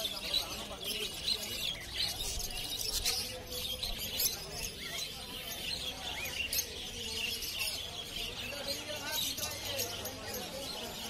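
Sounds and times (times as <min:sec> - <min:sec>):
budgerigars chattering: 0:00.0 - 0:11.0.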